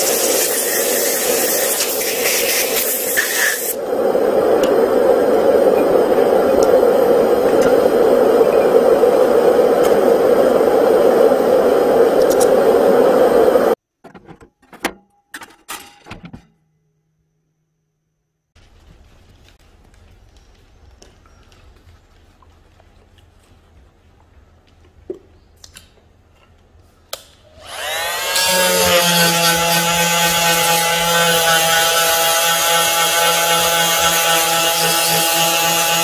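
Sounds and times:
compressed air hissing: 0.0s - 13.8s.

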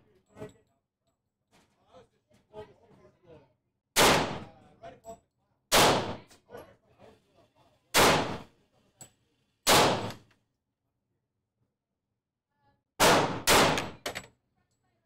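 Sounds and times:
pistol shots: 4.0s - 4.5s, 5.7s - 6.3s, 8.0s - 8.5s, 9.7s - 10.2s, 13.0s - 14.0s.

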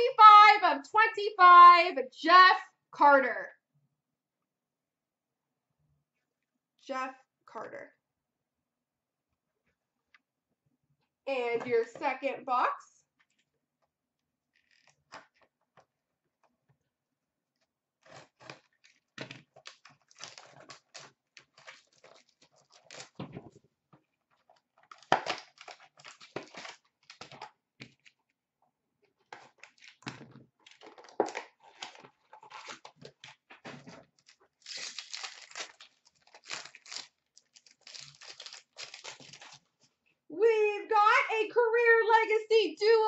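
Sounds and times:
foil wrapper crinkling: 18.0s - 23.3s, 24.4s - 28.1s, 29.4s - 39.8s
packaging rustling: 18.0s - 23.5s, 24.2s - 28.2s, 29.2s - 40.0s.

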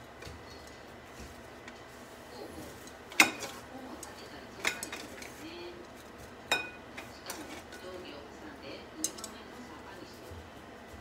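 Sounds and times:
chopsticks clinking on ceramic plates: 3.1s - 3.6s, 4.6s - 5.3s, 6.5s - 7.8s, 9.0s - 9.4s.

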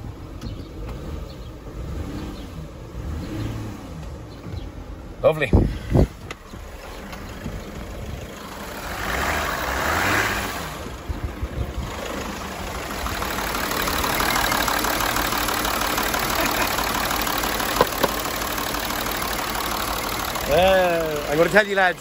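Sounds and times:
diesel engine idling roughly: 10.7s - 22.0s.

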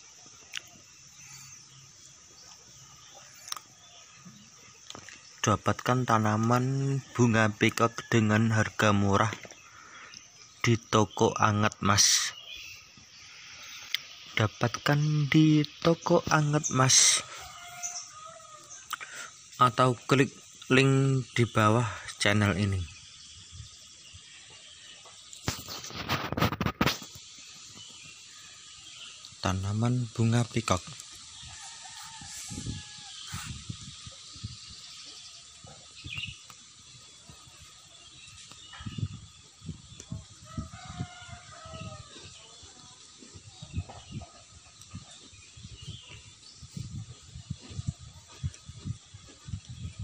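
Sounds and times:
faint steady hiss: 0.0s - 41.6s
rooster crowing: 16.9s - 18.8s, 31.4s - 33.5s, 40.4s - 42.3s.

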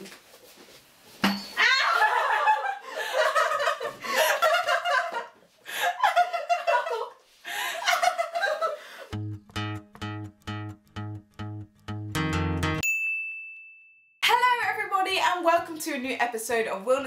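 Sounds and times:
young woman laughing hard: 1.6s - 9.1s.

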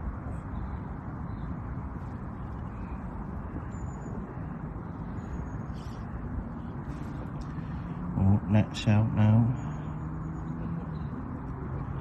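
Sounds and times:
low rumble and hiss: 0.0s - 10.0s.

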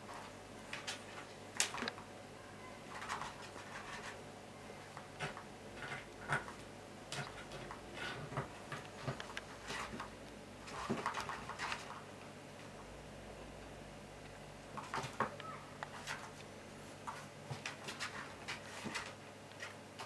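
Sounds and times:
cat scratching on plastic: 3.0s - 4.2s.

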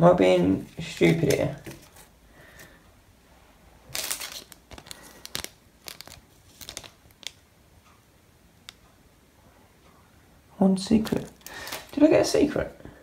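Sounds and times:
foil wrapper crinkling: 0.6s - 2.7s, 3.9s - 7.4s, 11.0s - 12.1s.

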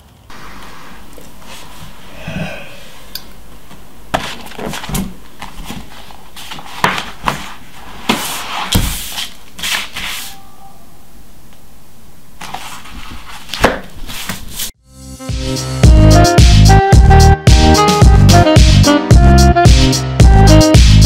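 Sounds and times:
steady hiss: 0.2s - 3.6s
person groaning: 2.1s - 3.1s
papers rustling: 3.6s - 10.4s, 12.4s - 14.7s.

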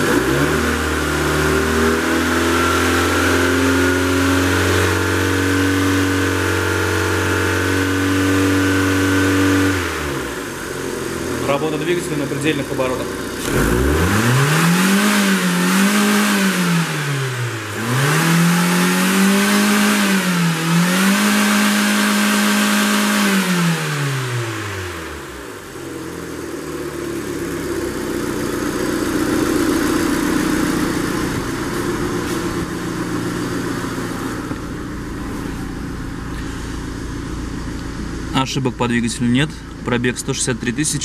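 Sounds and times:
car engine revving: 0.0s - 41.0s.

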